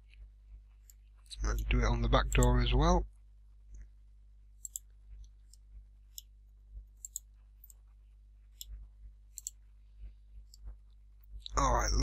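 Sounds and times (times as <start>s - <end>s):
computer mouse clicks: 4.6s - 6.3s, 7.0s - 7.8s, 8.5s - 9.6s.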